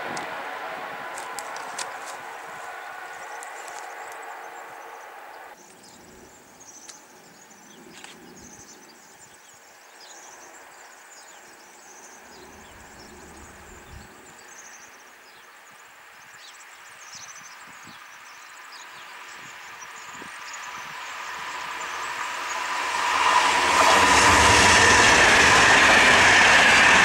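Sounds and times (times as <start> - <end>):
wind gust on microphone: 0.0 - 6.4, 12.3 - 14.4
high-speed train receding: 0.0 - 16.8, 17.7 - 27.0
birds chirping: 0.0 - 27.0.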